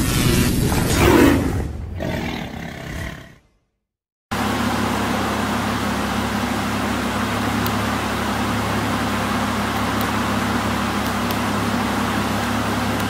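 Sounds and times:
car engine idling: 4.4 - 13.0.

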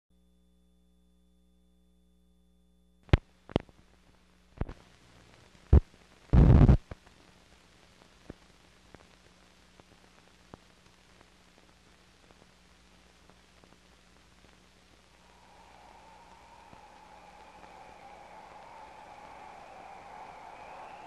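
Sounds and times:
faint hum: 0.1 - 21.0
crackling hiss with ticks: 3.1 - 21.0
loud burst of noise: 15.2 - 21.0.

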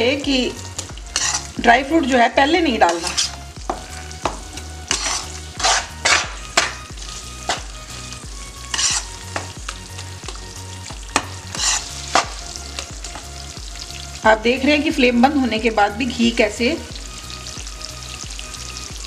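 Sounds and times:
ghee sizzling: 0.0 - 19.0
spatula scraping a pan: 0.8 - 9.6, 11.2 - 13.2.

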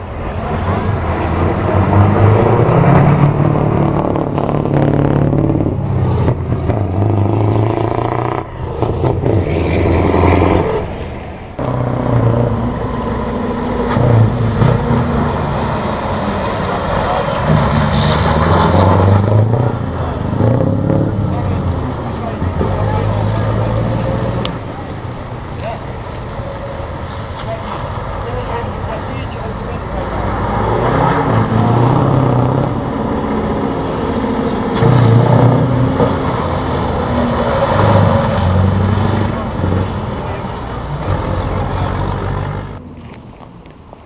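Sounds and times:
truck diesel engine revving: 0.0 - 42.8.

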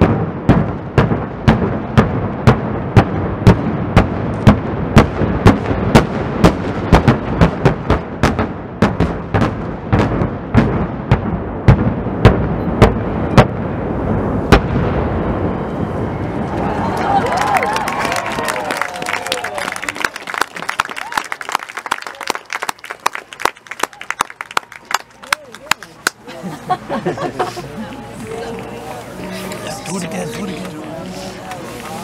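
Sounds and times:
distant explosions: 0.0 - 16.8
rolling rumble of echoes: 0.0 - 19.9.

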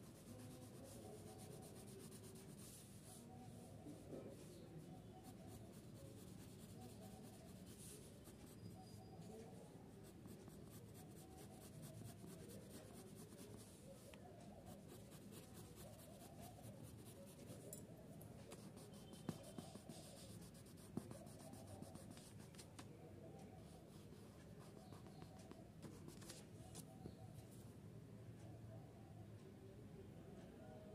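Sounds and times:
pencil scratching on paper: 0.0 - 3.6, 5.0 - 13.8, 14.5 - 22.6, 23.6 - 26.9.

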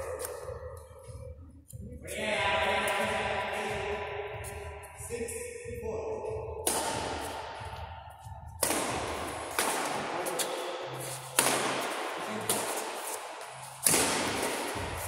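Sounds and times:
rackets striking shuttlecock: 0.0 - 1.2, 6.6 - 7.9, 8.6 - 15.0.

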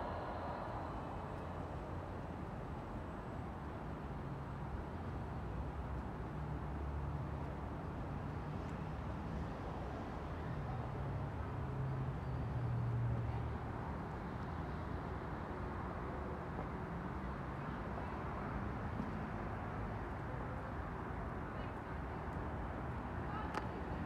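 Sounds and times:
low hum: 0.0 - 3.7
outdoor rumble and hiss: 0.0 - 24.0.

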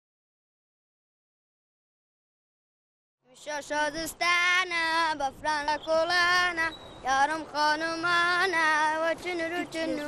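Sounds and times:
person singing unaccompanied: 3.2 - 10.0.

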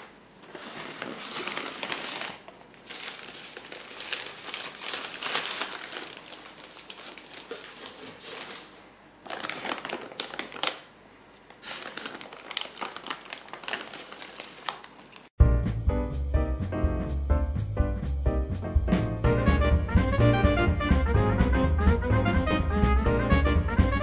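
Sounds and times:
paper crinkling: 0.0 - 10.9, 11.5 - 15.3
plastic bags rustling: 0.0 - 15.3.

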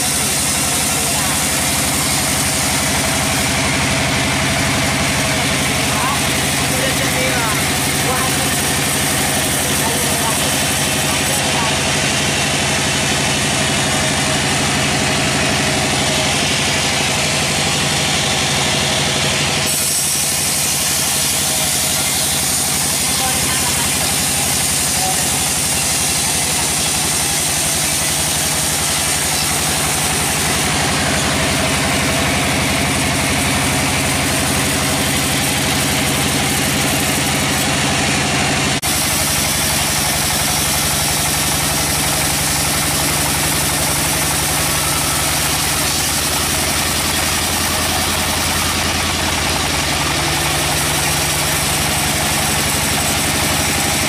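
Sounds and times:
saw blade sawing hiss: 0.0 - 11.7, 19.6 - 37.7, 38.8 - 54.0
band saw mechanical drone: 0.0 - 54.0.

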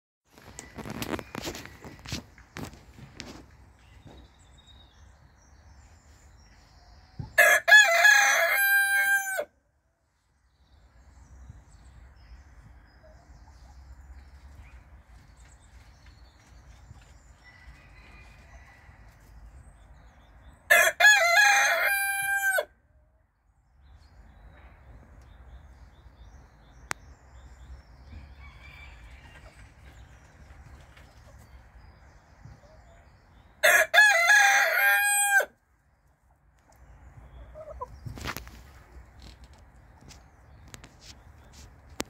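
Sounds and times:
rooster crowing: 7.4 - 9.5, 20.7 - 22.7, 33.6 - 35.5.

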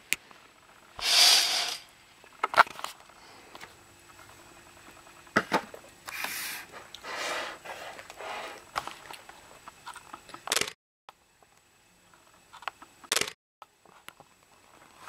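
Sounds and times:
sharp click: 13.1 - 13.4.

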